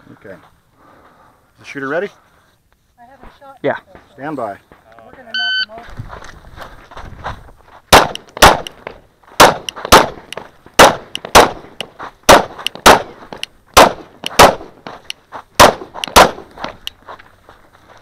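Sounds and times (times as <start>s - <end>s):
pistol shots: 7.9s - 8.8s, 9.4s - 13.2s, 13.8s - 14.8s, 15.6s - 16.4s.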